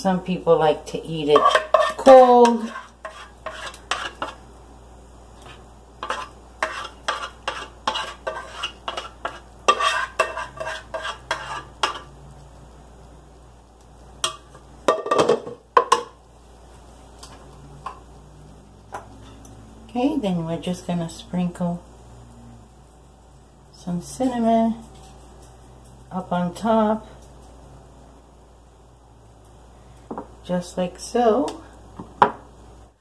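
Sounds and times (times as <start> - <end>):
spoon scraping a cooking pot: 1.1 - 4.4, 5.4 - 12.1.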